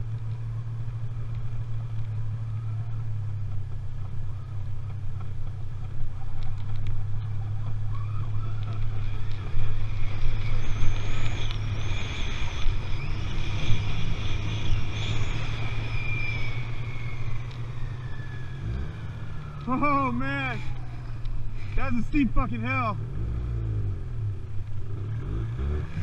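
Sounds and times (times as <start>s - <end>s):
snowmobile engine running: 0.0s - 26.0s
high wavering whine: 7.9s - 23.0s.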